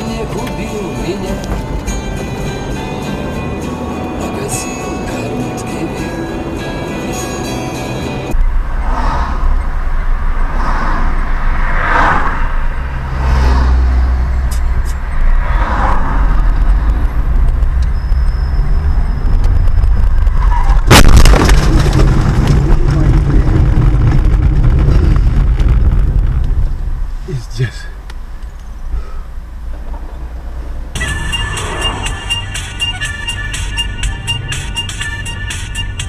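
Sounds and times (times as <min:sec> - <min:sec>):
car driving rumble: 0:00.0 - 0:36.0
loud collision impact: 0:20.8 - 0:27.0.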